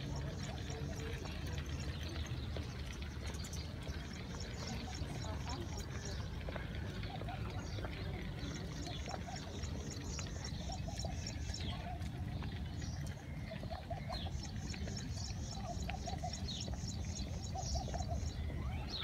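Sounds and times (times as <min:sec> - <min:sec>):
small birds chirping: 0:00.0 - 0:19.0.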